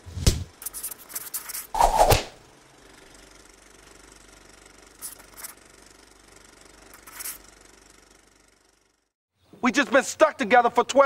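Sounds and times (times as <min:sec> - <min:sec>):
faint mechanical hum: 0:00.0 - 0:11.0
short swishes: 0:01.6 - 0:02.4.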